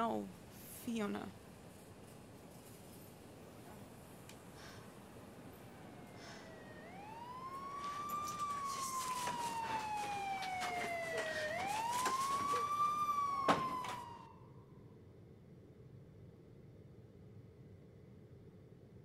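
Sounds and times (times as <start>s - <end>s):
emergency siren wailing: 3.8s - 14.7s.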